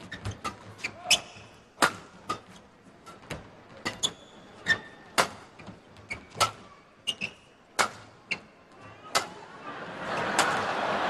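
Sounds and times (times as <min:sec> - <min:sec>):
shoes squeaking on court floor: 0:00.0 - 0:08.9
rackets hitting shuttlecock: 0:00.2 - 0:02.6, 0:05.1 - 0:05.5, 0:06.2 - 0:06.6, 0:07.7 - 0:08.4, 0:09.1 - 0:09.4, 0:10.3 - 0:10.6.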